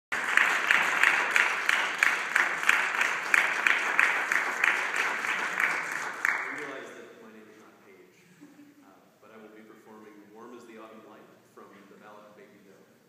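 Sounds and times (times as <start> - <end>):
close hands clapping evenly: 0.1 - 6.8
audience applauding: 0.1 - 7.0.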